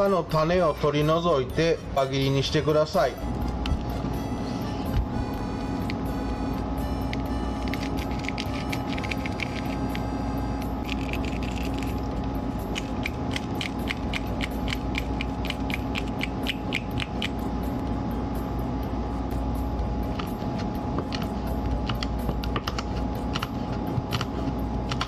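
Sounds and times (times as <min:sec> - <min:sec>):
steady low hum: 0:00.0 - 0:25.0
dried chili pod crackling: 0:10.8 - 0:17.2.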